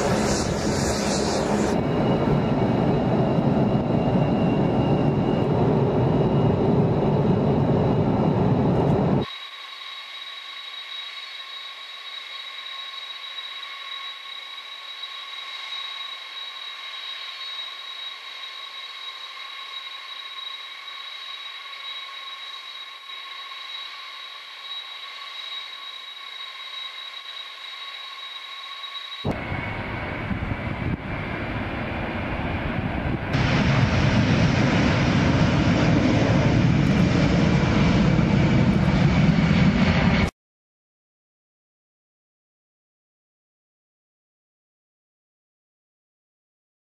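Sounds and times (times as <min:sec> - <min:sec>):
jet engines roaring: 0:00.0 - 0:09.3, 0:29.2 - 0:40.3
idling jet engine whine: 0:00.0 - 0:40.3.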